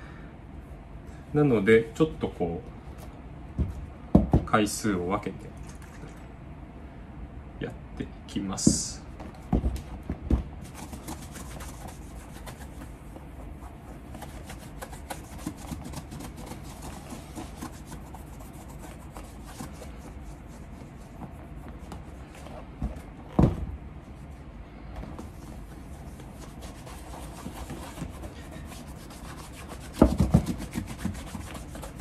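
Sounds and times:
cloth rubbing on leather: 0:10.6 - 0:22.7, 0:25.2 - 0:32.0.

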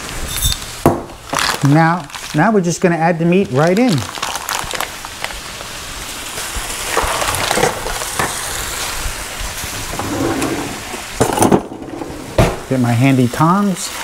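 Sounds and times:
meat sizzling in a frying pan: 0:00.0 - 0:10.0, 0:10.7 - 0:11.3.

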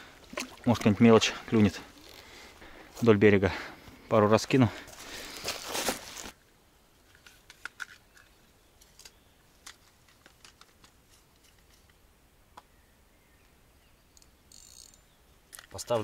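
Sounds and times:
fishing tackle clicking: 0:14.2 - 0:15.7.

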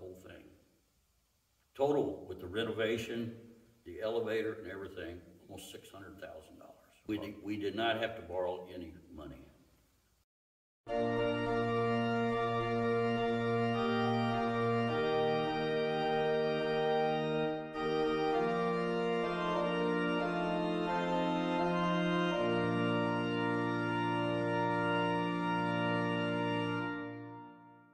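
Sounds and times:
organ chords over bass note: 0:10.9 - 0:27.9.

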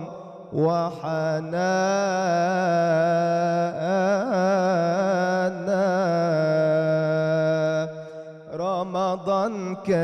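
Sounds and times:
man singing devotional song: 0:00.0 - 0:10.0
singer breathing: 0:07.9 - 0:08.5.

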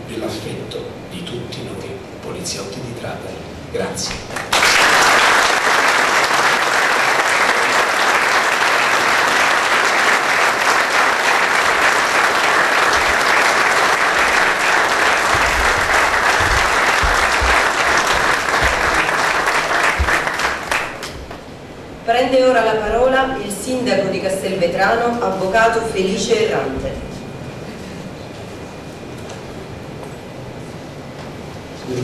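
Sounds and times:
audience applauding: 0:04.3 - 0:21.5
low thumps: 0:12.9 - 0:13.4, 0:14.1 - 0:21.5.

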